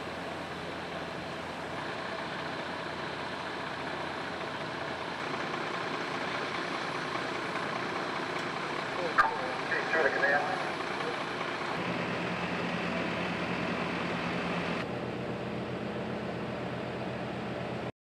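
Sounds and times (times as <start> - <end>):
fire truck engine running: 0.0 - 17.9.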